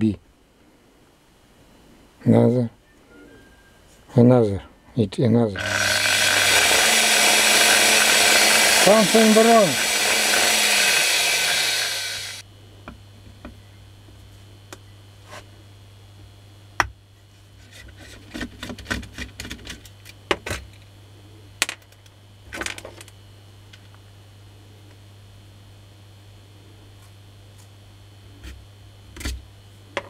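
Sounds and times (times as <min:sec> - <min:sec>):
steady low hum: 0:00.0 - 0:03.3, 0:03.9 - 0:30.0
electric polisher running: 0:05.6 - 0:12.4.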